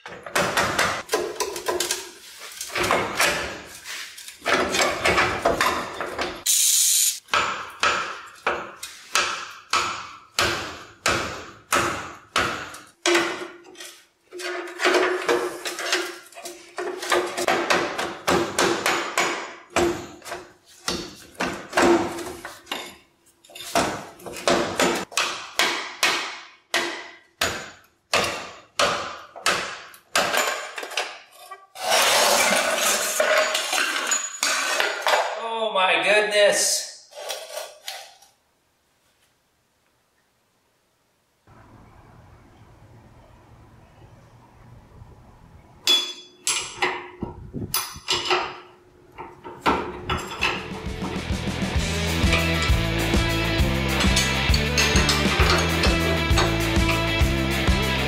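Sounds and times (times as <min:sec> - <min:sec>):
metallic clatter: 0:53.9 - 0:57.0.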